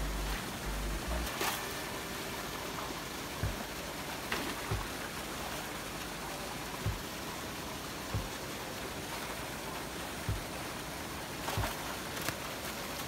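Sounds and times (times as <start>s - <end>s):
net thumps and splashes: 11.4s - 12.8s.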